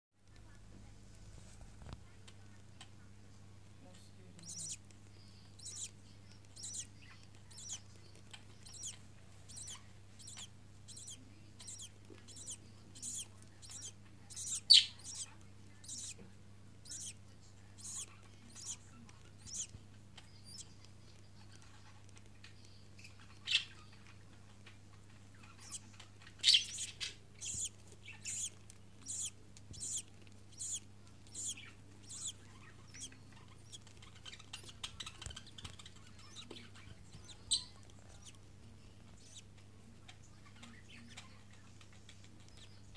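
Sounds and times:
steady low hum: 0.2s - 42.9s
chick cheeping: 4.4s - 16.2s, 16.8s - 17.2s, 17.8s - 21.7s, 25.4s - 39.6s.

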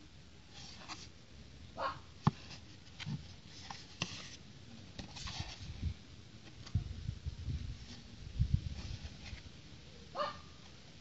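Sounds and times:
cardboard box handled: 0.5s - 1.2s, 2.2s - 5.8s, 8.7s - 9.5s.

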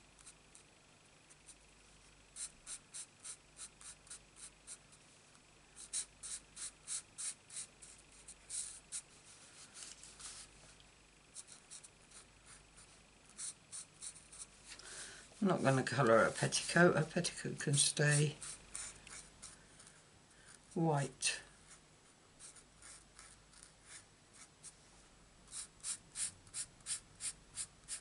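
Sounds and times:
marker scratching on cardstock: 2.4s - 4.8s, 5.8s - 9.1s, 11.4s - 14.5s, 18.1s - 19.6s, 22.4s - 24.5s, 25.5s - 28.0s.

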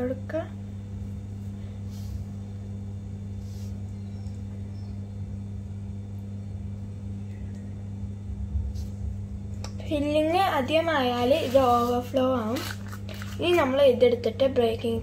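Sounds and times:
low hum: 0.0s - 15.0s
pastry rustling: 10.9s - 13.9s.

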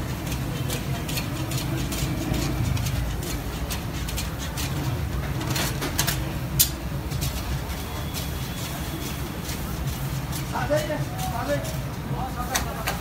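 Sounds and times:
light clicks and clacks: 12.4s - 13.0s.

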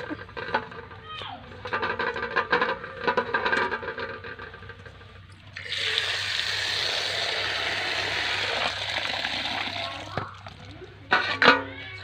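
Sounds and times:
tap water pouring into metal bowl: 5.4s - 10.8s.

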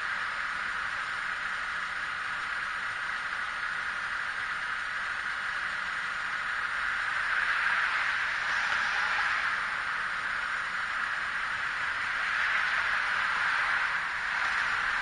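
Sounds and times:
street noise hiss: 0.0s - 15.0s
car driving past: 7.4s - 9.9s.

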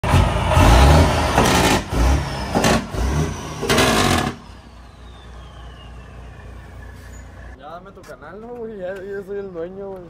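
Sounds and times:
engine revving: 0.0s - 7.6s.

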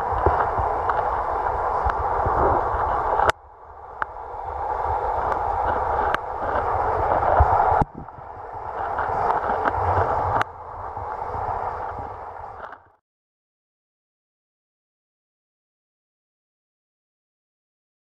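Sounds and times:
water rushing and gurgling: 0.0s - 13.0s.

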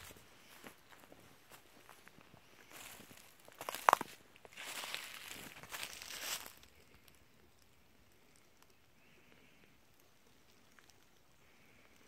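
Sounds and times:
footsteps crunching on dry leaves: 0.0s - 6.7s.

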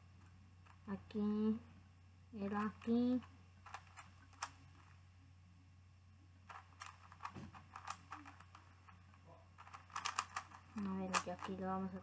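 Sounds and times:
steady low hum: 0.0s - 12.0s
plastic puzzle clicks and turns: 2.5s - 5.0s, 6.5s - 12.0s.

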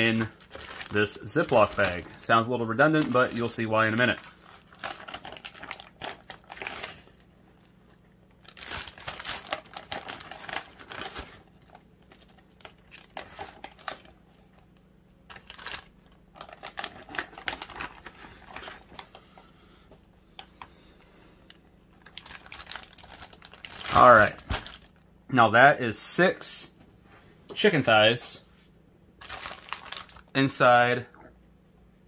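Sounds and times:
plastic bags crinkling: 0.0s - 14.2s, 15.2s - 19.5s, 21.4s - 25.0s, 29.2s - 30.6s.

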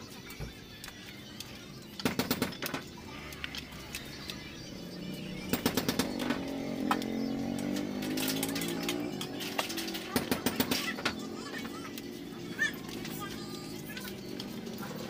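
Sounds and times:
plastic connectors rattling and clicking: 7.6s - 11.8s.

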